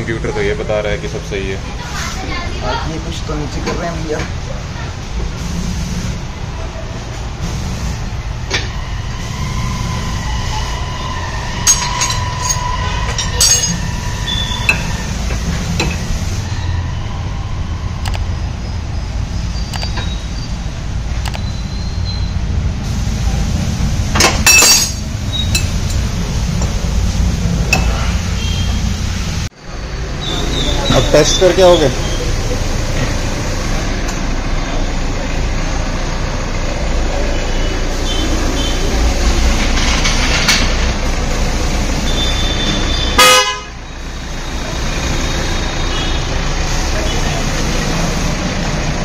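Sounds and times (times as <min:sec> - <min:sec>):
diesel engine rumble: 0:00.0 - 0:49.0
street traffic: 0:00.0 - 0:49.0
metal spanner clinking on metal: 0:11.7 - 0:12.6, 0:13.2 - 0:13.8, 0:24.4 - 0:26.0
car horn toot: 0:42.1 - 0:43.9.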